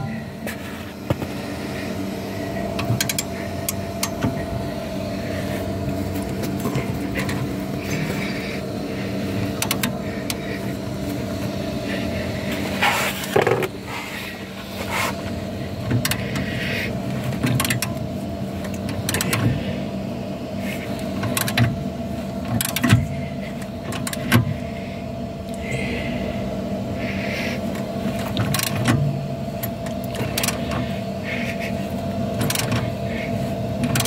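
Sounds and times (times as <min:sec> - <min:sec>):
steady low hum: 0:00.0 - 0:34.0
spanner clicking on metal: 0:02.8 - 0:04.3, 0:09.6 - 0:10.4, 0:17.4 - 0:18.0, 0:18.7 - 0:19.4, 0:21.2 - 0:21.7, 0:22.6 - 0:23.0, 0:23.9 - 0:24.5, 0:28.4 - 0:28.9, 0:29.6 - 0:30.7, 0:32.4 - 0:32.8.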